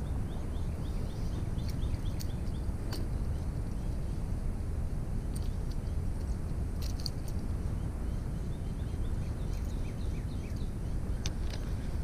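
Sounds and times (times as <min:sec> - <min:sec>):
bird chirping: 0:00.0 - 0:04.3, 0:07.6 - 0:12.0
low wind rumble on microphone: 0:00.0 - 0:12.0.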